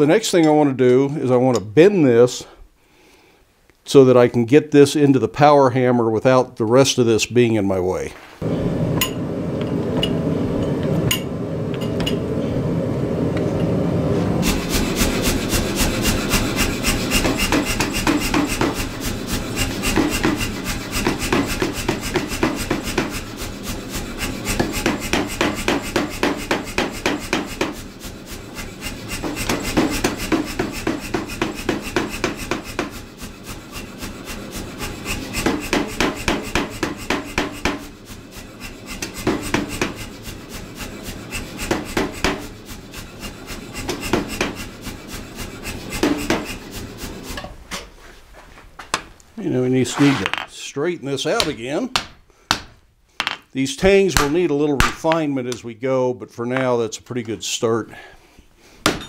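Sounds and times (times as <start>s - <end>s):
power hammer striking metal: 14.4s - 42.6s, 43.2s - 46.7s, 54.2s - 55.1s.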